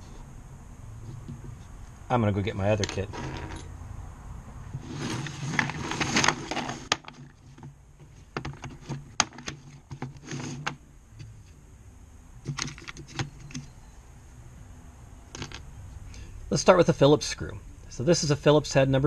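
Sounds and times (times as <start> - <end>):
steel bits clinking: 2.8 - 3.7
case scraping on workbench: 2.9 - 3.7, 4.7 - 10.8.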